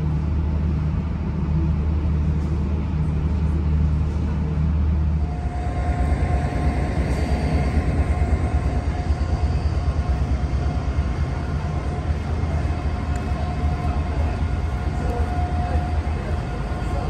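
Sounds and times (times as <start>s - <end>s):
diesel train rumble: 0.0s - 17.0s
faint even whine: 5.0s - 17.0s.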